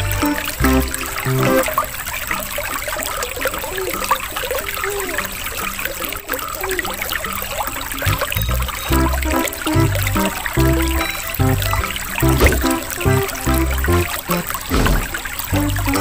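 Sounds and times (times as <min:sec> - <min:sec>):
aquarium air bubbling: 0:06.9 - 0:16.0.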